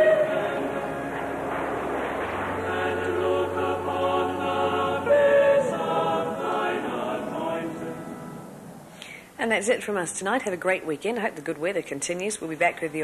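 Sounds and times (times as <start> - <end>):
choir singing held chords: 0.0 - 8.9.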